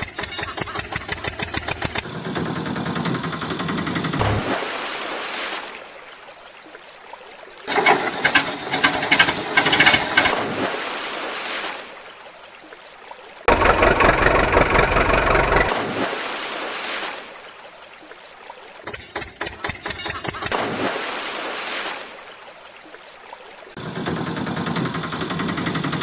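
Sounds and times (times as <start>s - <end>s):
water splashing: 4.0s - 23.8s
toy engine sound effect: 13.5s - 15.7s.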